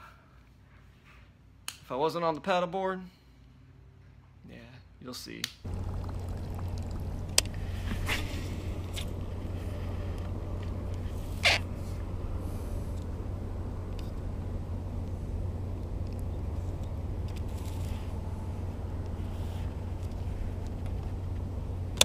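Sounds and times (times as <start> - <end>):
wind rumble on microphone: 5.7 - 22.0.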